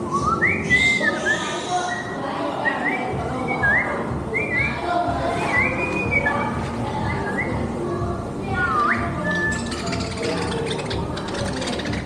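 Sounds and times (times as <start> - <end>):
whistled melody: 0.1 - 1.4, 8.6 - 10.3
background music: 3.2 - 12.0.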